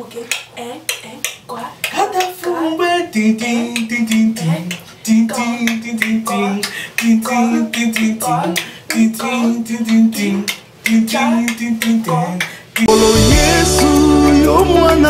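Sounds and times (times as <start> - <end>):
dance music with singing: 1.0 - 15.0.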